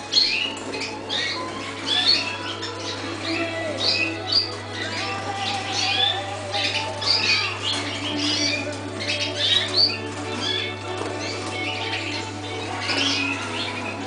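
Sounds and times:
canaries chirping: 0.0 - 14.0.

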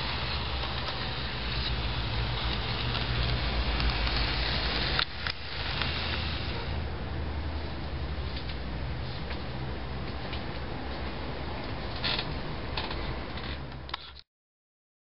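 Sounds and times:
model train running on track: 0.0 - 6.9.

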